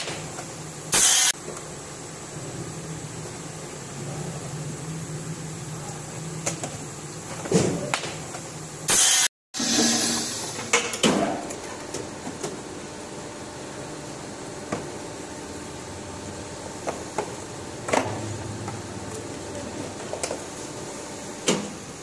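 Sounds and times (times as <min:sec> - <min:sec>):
machine humming with clicks: 0:00.0 - 0:01.8, 0:05.8 - 0:08.6, 0:10.4 - 0:13.0, 0:13.6 - 0:22.0
loud hissing burst: 0:00.9 - 0:01.4, 0:08.9 - 0:10.7.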